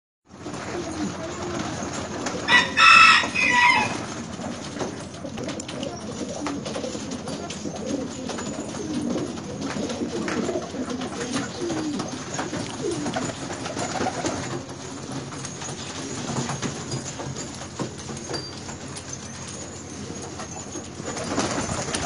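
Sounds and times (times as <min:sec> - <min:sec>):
pigeons cooing: 0:00.3 - 0:22.0.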